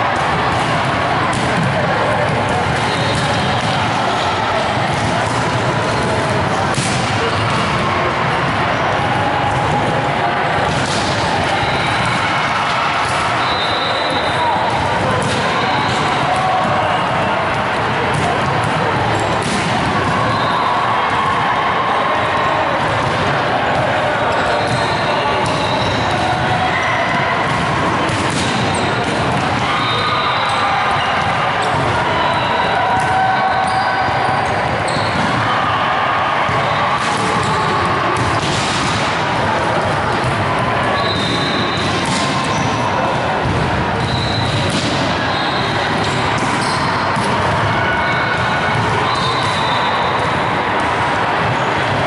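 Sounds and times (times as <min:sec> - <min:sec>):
volleyballs hit and bouncing: 0:00.0 - 0:52.0
sneaker squeaks: 0:02.8 - 0:03.7, 0:13.1 - 0:14.6, 0:24.3 - 0:26.9, 0:33.4 - 0:35.4, 0:40.9 - 0:42.9, 0:44.0 - 0:47.0, 0:49.0 - 0:50.2.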